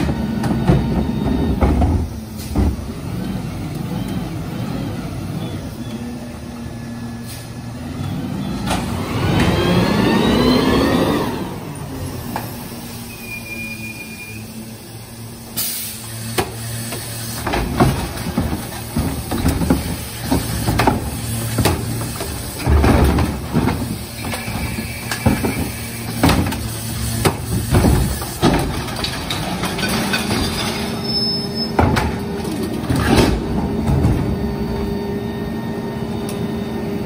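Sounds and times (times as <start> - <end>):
recyclables clattering into hopper: 16.5 - 34.5
carts banging: 17.4 - 34.6.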